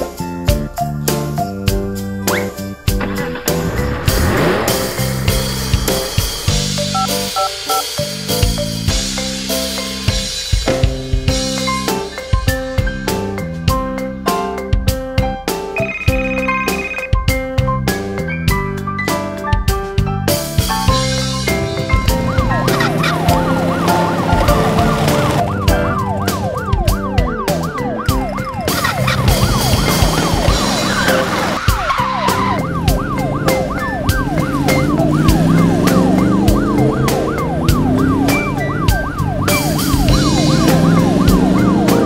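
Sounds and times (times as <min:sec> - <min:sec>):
upbeat music with beat: 0:00.0 - 0:18.9, 0:19.6 - 0:42.0
cartoon police siren yelping: 0:21.7 - 0:42.0.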